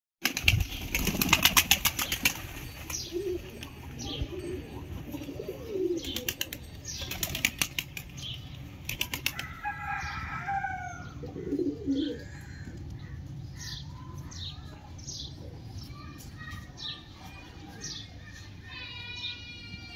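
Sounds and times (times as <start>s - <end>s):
pigeon wings flapping: 0.2s - 2.9s, 6.0s - 8.2s, 8.8s - 9.6s
pigeon cooing: 3.1s - 6.6s, 11.2s - 12.7s.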